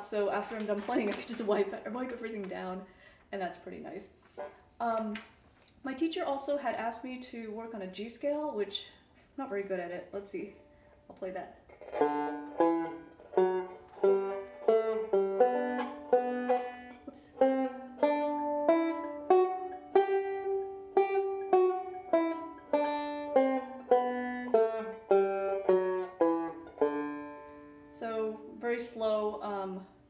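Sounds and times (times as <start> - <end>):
banjo plucked notes: 11.7 - 28.9.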